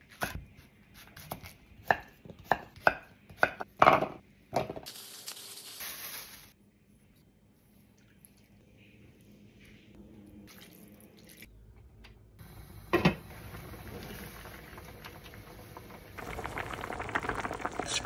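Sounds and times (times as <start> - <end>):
seasoning pouring and stirring: 4.9 - 6.6, 13.6 - 18.0
stew simmering and bubbling: 7.4 - 18.0.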